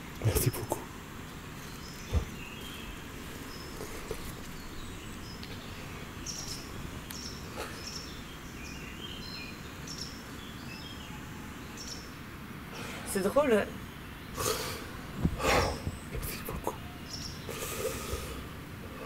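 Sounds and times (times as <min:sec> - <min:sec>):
bird chirps: 0:01.6 - 0:12.2, 0:13.7 - 0:18.2.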